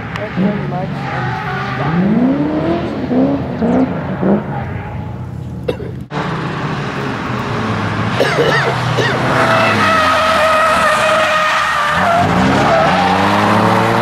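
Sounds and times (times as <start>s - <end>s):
car engines revving: 0.0s - 14.0s
tyres squealing: 8.2s - 14.0s.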